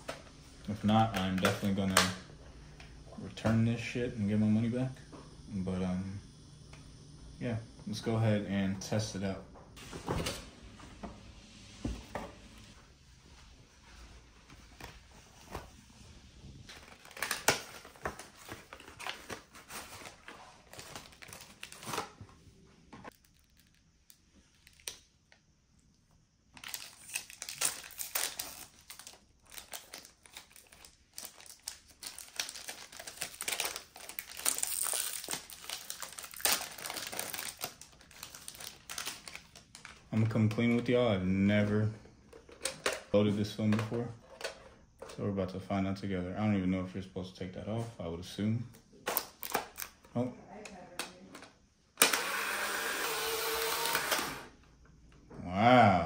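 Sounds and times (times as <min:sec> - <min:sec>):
foil wrapper crinkling: 0:16.7 - 0:22.2, 0:23.1 - 0:25.3, 0:26.5 - 0:40.7.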